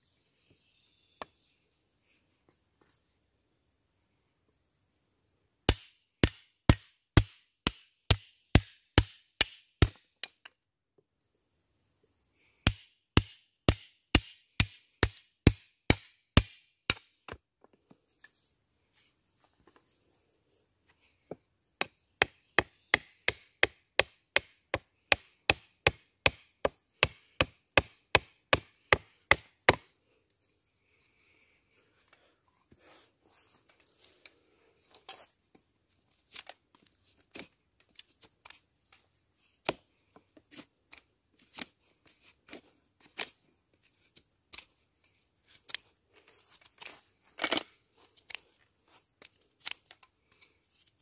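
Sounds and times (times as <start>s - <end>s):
hand tool chopping wood: 5.7s - 10.5s, 12.6s - 17.4s, 21.8s - 29.9s.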